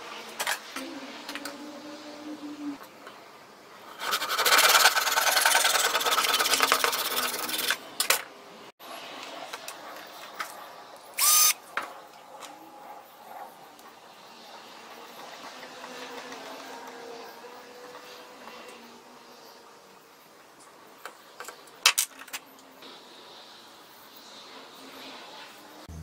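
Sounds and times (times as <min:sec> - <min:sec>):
power drill boring into wood: 0:11.2 - 0:11.6.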